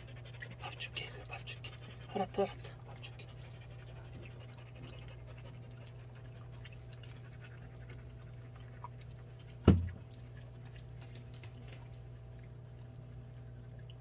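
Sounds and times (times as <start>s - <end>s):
dog panting: 0.0s - 9.6s
loud thump: 9.7s - 9.9s.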